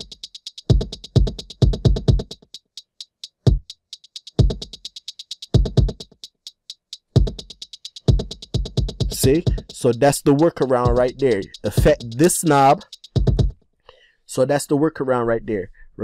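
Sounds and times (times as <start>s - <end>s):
drum machine beat: 0.0s - 13.6s
fast hi-hats: 0.0s - 13.6s
deep kick and bass hits: 13.2s - 13.5s.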